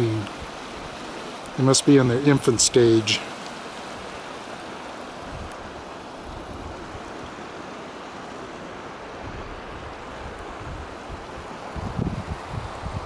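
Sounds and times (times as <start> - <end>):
water rushing over rocks: 0.0 - 13.0
wind rumble on microphone: 5.2 - 7.2, 9.2 - 13.0.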